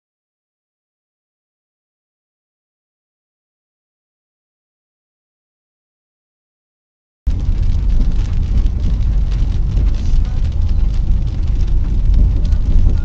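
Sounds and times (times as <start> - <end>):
car interior low rumble: 7.3 - 13.0
rain pattering on windshield: 7.3 - 13.0.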